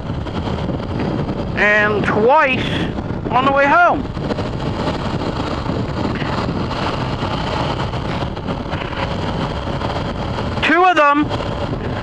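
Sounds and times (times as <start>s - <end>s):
motorcycle engine: 0.0s - 12.0s
wind on microphone: 0.0s - 12.0s.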